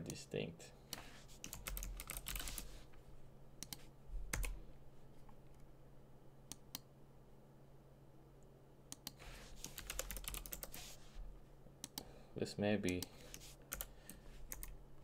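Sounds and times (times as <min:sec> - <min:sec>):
faint steady hum: 0:00.0 - 0:15.0
computer keyboard keystrokes: 0:00.9 - 0:02.6, 0:03.6 - 0:04.6, 0:08.9 - 0:10.8, 0:12.9 - 0:13.9, 0:14.5 - 0:14.8.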